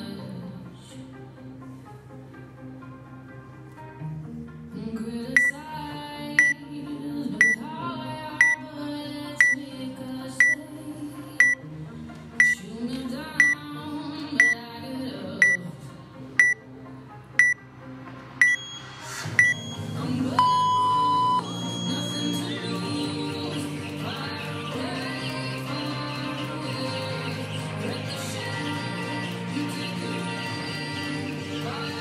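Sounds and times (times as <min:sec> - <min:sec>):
short high timer beeps: 0:11.4 - 0:11.6, 0:18.4 - 0:22.5
long low start tone: 0:19.4 - 0:22.3.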